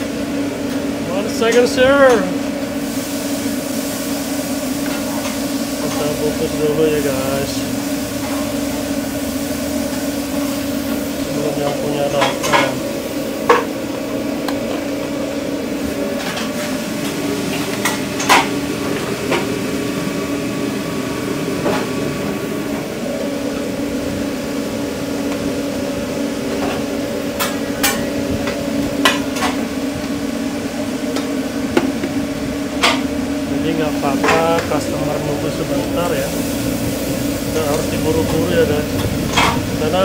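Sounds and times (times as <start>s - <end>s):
steady hum of equipment: 0.0s - 40.0s
utensils and containers clattering: 4.8s - 7.6s, 10.3s - 13.8s, 16.0s - 19.5s, 34.1s - 36.2s, 37.5s - 40.0s.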